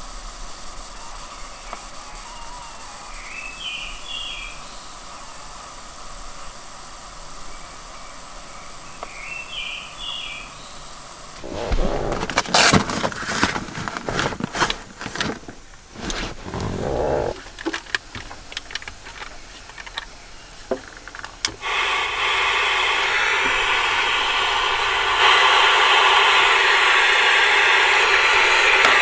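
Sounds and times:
radio static hiss: 0:00.0 - 0:09.0, 0:09.9 - 0:17.6, 0:21.6 - 0:29.0
nylon backpack rustling: 0:13.7 - 0:17.4.

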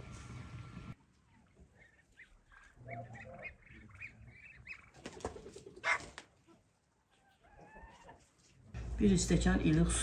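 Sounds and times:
chickens clucking: 0:01.0 - 0:08.6.

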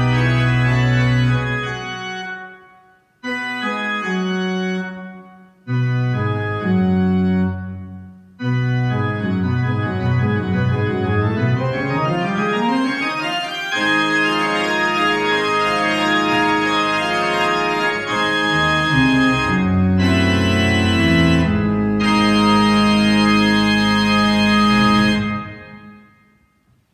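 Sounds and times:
church organ playing: 0:00.0 - 0:26.7.

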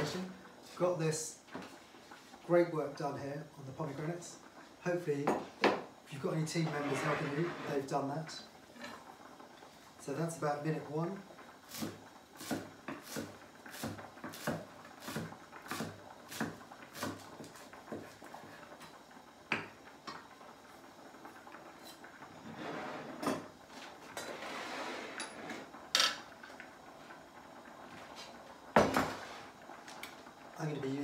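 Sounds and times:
knife scraping on board: 0:06.7 - 0:07.8.

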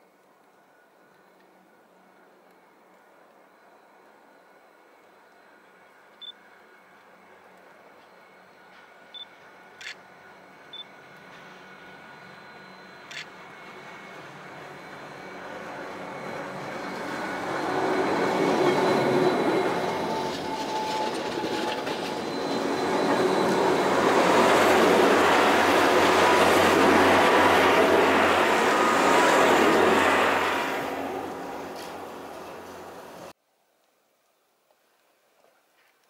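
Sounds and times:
electric train passing: 0:00.5 - 0:33.4.

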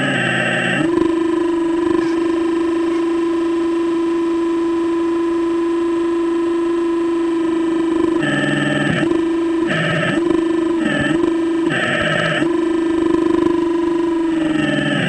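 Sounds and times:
electric pump motor whine: 0:00.0 - 0:15.0.

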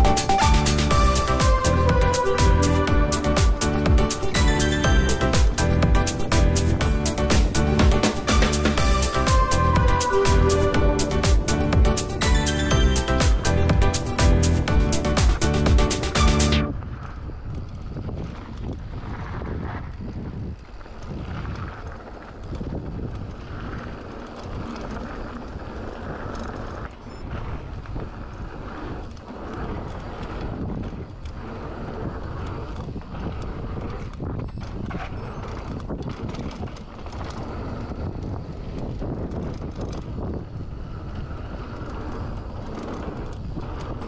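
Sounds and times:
bike tyres on loose dirt: 0:00.0 - 0:44.0
wind buffeting microphone: 0:00.0 - 0:44.0
bike rattling and knocking: 0:02.4 - 0:09.5, 0:27.7 - 0:44.0.

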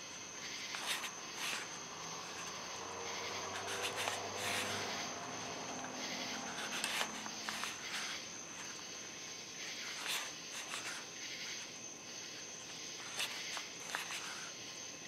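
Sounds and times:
paper rustling and crackling: 0:00.7 - 0:02.6, 0:03.4 - 0:04.9, 0:06.4 - 0:08.8, 0:09.8 - 0:11.1, 0:13.0 - 0:14.5.

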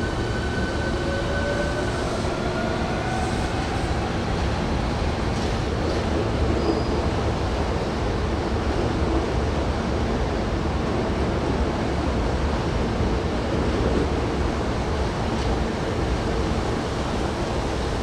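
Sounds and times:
electric train noise: 0:00.0 - 0:18.0
railway platform rumble and hiss: 0:00.0 - 0:18.0.

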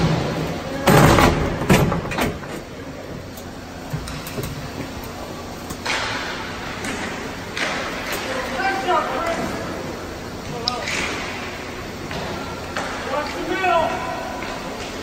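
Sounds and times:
hockey sticks knocking: 0:04.0 - 0:09.4, 0:10.6 - 0:15.0.

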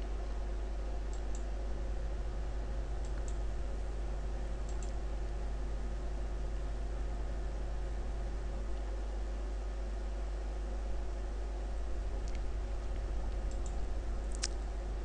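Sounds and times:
low electrical hum: 0:00.0 - 0:15.0
computer mouse clicks: 0:01.1 - 0:01.5, 0:03.0 - 0:03.4, 0:04.6 - 0:05.0, 0:13.3 - 0:14.6.

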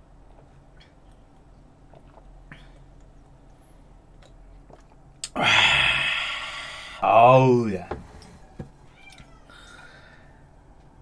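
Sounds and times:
loud raspy exhale: 0:05.3 - 0:07.0.

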